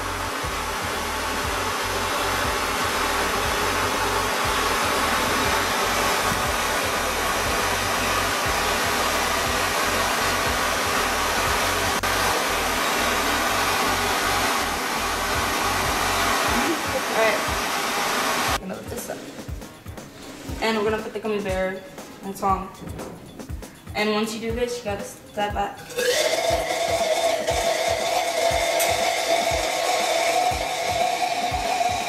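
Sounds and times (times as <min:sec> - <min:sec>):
gas burner flame hissing: 0:00.0 - 0:19.2, 0:25.9 - 0:32.0.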